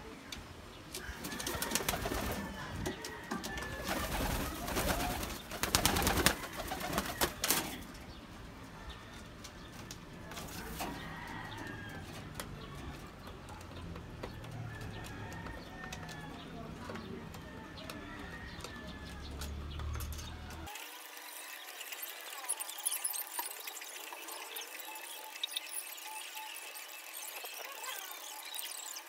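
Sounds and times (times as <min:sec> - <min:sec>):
wings flapping: 0:01.0 - 0:07.9
pigeons cooing: 0:01.1 - 0:07.9.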